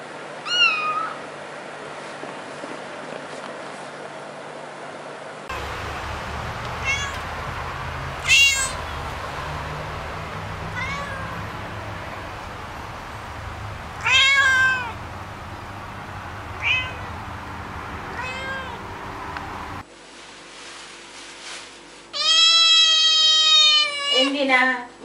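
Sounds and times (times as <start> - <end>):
cat meowing: 0.4 - 1.2, 6.3 - 12.6, 13.2 - 15.0, 16.4 - 17.4, 18.1 - 19.0, 22.2 - 24.3.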